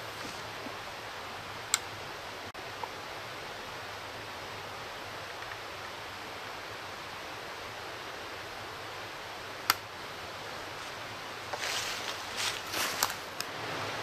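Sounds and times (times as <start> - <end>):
outdoor hiss: 0.0 - 14.0.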